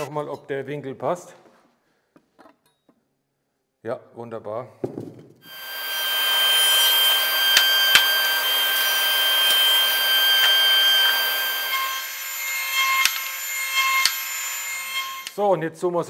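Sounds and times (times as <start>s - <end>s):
table saw cutting wood: 5.5s - 15.4s
sharp clicks: 13.0s - 14.3s.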